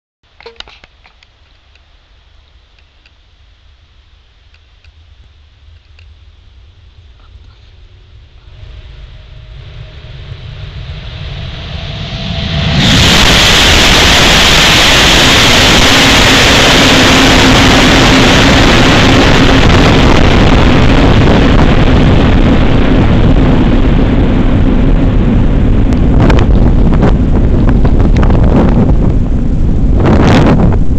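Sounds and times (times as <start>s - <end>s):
steady low hum: 0.3s - 30.9s
air blast buffeting microphone: 3.7s - 30.9s
train rushing past in tunnel: 7.9s - 30.9s.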